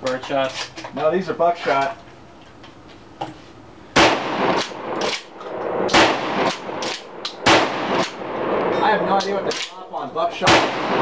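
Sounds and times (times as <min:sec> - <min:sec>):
loud shotgun blasts: 0:03.9 - 0:11.0.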